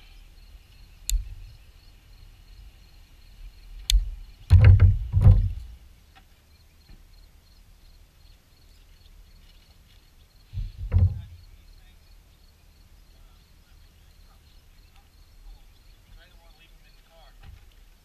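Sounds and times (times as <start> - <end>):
loud low thumps: 4.0 - 5.8, 10.6 - 11.4.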